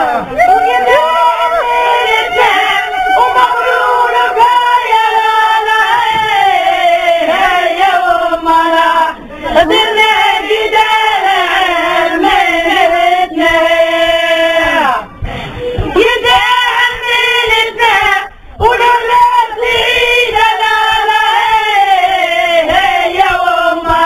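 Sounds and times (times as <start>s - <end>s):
singing in long sliding notes: 0.0s - 24.0s.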